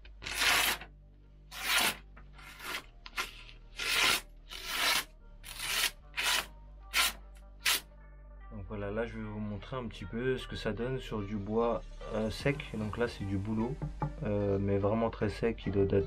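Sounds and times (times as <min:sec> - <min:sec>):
short rasping scrapes: 0:00.2 - 0:00.9, 0:01.5 - 0:07.8.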